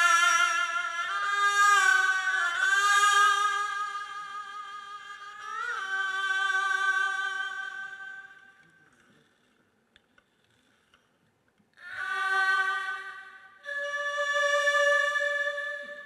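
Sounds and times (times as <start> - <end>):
bowed fiddles sustained notes: 0.0 - 8.6, 11.9 - 16.0.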